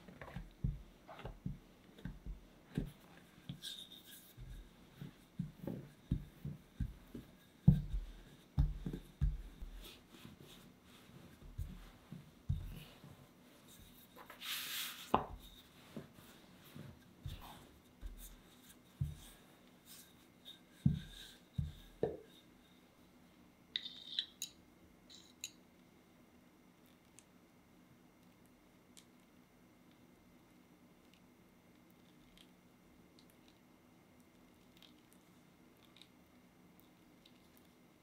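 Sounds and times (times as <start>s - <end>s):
rolling pin knocks and thumps: 5.3s - 9.8s.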